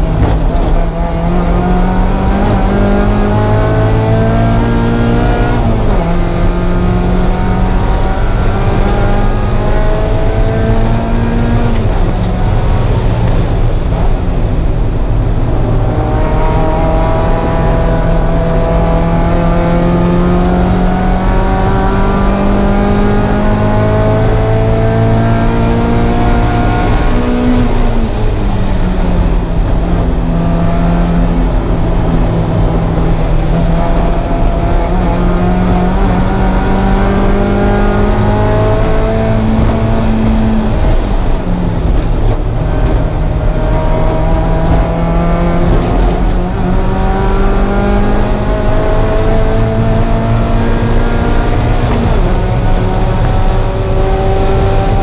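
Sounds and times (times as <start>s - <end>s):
car engine running hard: 0.0s - 55.0s
road and wind noise: 0.0s - 55.0s.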